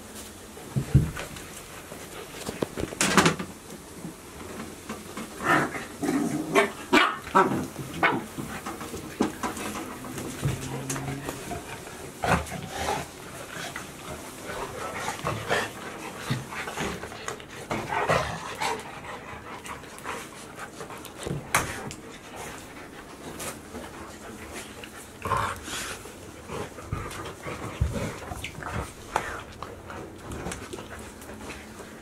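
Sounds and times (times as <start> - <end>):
dogs panting: 7.7 - 32.0
paws tapping on hard floor: 14.5 - 25.6, 26.5 - 32.0.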